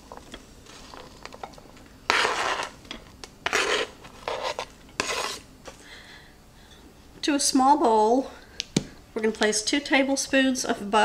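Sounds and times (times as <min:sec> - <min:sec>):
onion scraped off cutting board: 0:02.1 - 0:02.8, 0:03.4 - 0:05.5.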